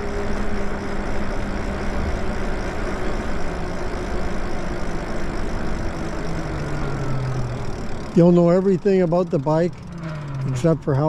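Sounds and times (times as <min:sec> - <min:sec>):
faint electric motor hum: 0:00.0 - 0:11.0.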